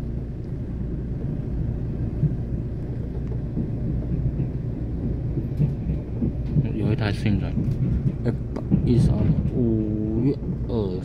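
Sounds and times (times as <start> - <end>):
train rumbling over rails: 0.0 - 11.0
faint wheel knocks: 2.2 - 10.6.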